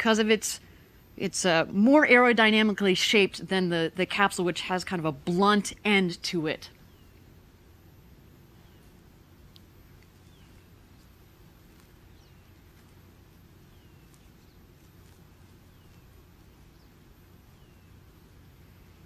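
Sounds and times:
faint low hum: 0:00.0 - 0:19.0
light hiss: 0:06.8 - 0:19.0.

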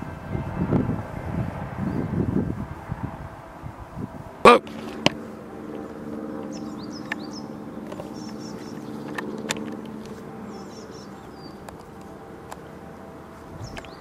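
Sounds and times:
vehicle engine humming: 0:00.0 - 0:14.0
small birds chirping: 0:04.6 - 0:14.0.

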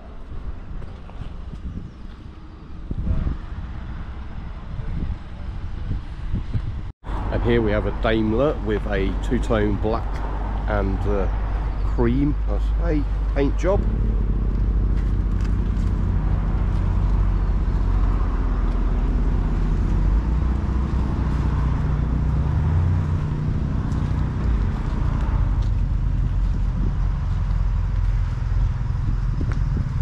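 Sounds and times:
car engine running: 0:11.7 - 0:30.0.

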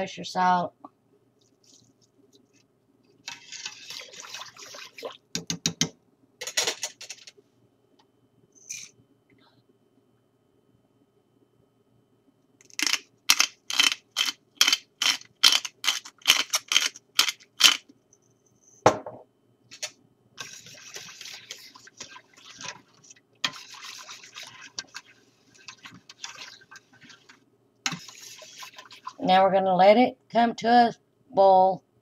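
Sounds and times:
whisk scraping metal pot: 0:03.3 - 0:05.2, 0:20.4 - 0:29.2.

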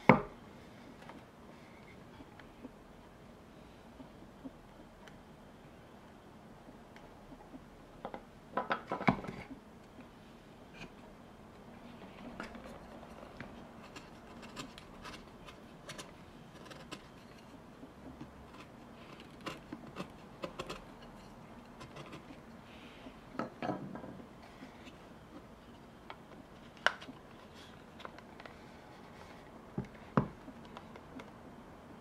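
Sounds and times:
carving tool scraping wood: 0:18.2 - 0:22.4.

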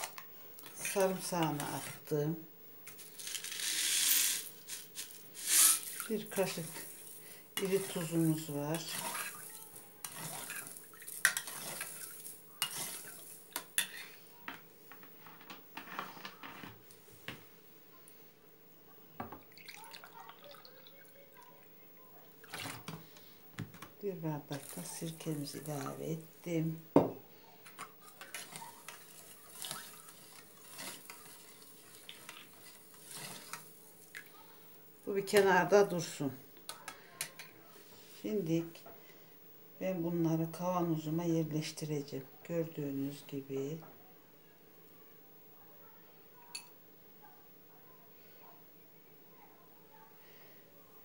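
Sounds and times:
metal spoon stirring in a pot: 0:02.9 - 0:14.2, 0:24.4 - 0:26.3, 0:27.6 - 0:34.3
liquid swishing: 0:04.4 - 0:14.1, 0:28.0 - 0:34.3.

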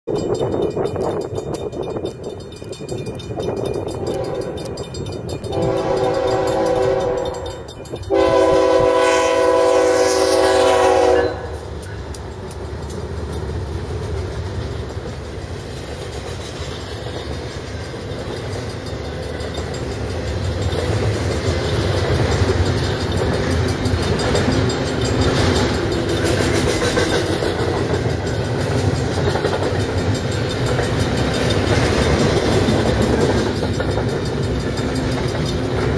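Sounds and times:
freight train rumble and wheel clatter: 0:00.0 - 0:35.9
locomotive horn blasts: 0:04.0 - 0:04.6, 0:05.5 - 0:11.7.

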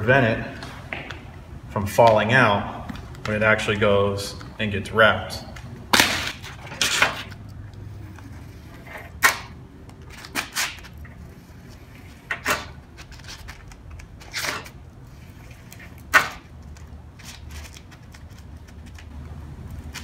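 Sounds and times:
foil insulation crinkling: 0:12.8 - 0:19.1.

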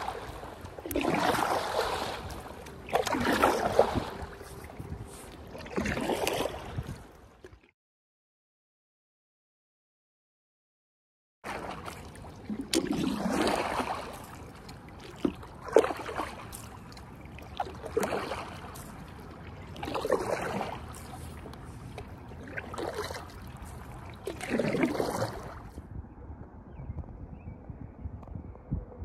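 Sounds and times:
paddle splashing in water: 0:00.0 - 0:07.7, 0:11.4 - 0:25.8.

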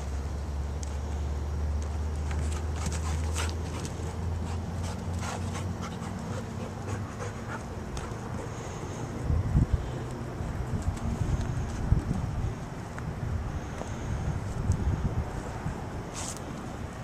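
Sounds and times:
dog panting: 0:02.4 - 0:09.0
wind rumbling on microphone: 0:08.1 - 0:17.0.

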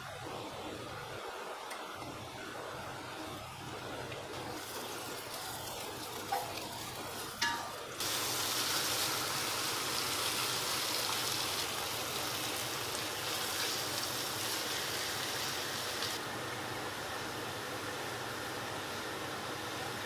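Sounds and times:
garlic and onion frying: 0:01.2 - 0:20.0
chicken sizzling in hot oil: 0:04.3 - 0:20.0.

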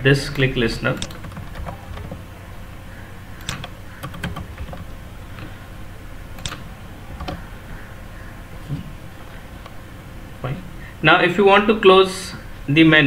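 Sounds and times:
faint low hum: 0:00.0 - 0:13.0
keyboard key clicks: 0:01.0 - 0:02.2, 0:03.4 - 0:05.6, 0:06.3 - 0:07.5.

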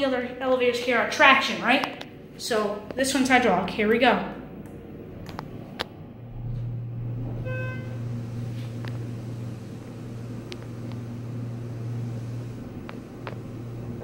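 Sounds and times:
elevator pump motor humming: 0:00.0 - 0:14.0
short electronic tone: 0:07.1 - 0:08.2.

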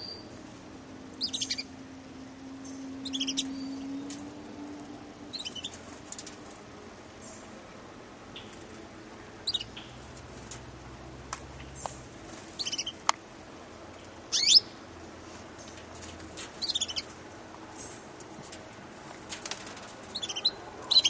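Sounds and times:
canaries chirping: 0:00.0 - 0:00.3, 0:01.1 - 0:01.8, 0:02.4 - 0:04.5, 0:05.3 - 0:06.6, 0:08.3 - 0:10.6, 0:11.8 - 0:13.1, 0:14.2 - 0:14.8, 0:16.0 - 0:17.2, 0:19.4 - 0:21.0.

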